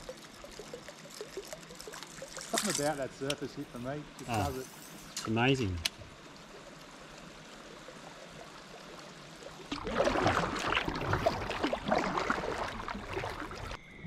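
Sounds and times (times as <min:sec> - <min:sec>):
kayak splashing and gurgling: 0:00.0 - 0:03.0, 0:07.6 - 0:13.8
river water washing: 0:00.0 - 0:13.8.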